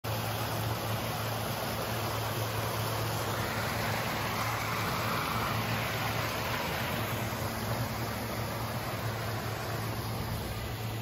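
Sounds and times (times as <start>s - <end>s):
stream and waterfall rushing: 0.0s - 11.0s.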